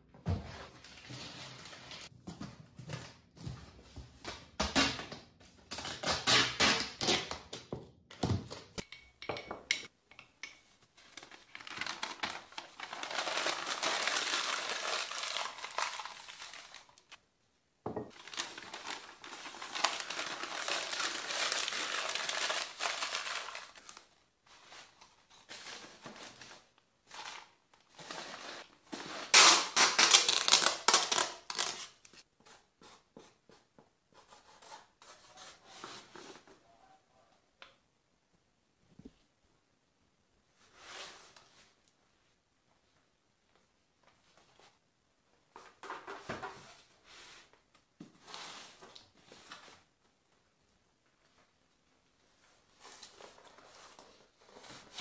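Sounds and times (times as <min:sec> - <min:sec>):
packing paper crinkling: 0:11.0 - 0:17.2, 0:18.1 - 0:28.6, 0:29.3 - 0:32.0.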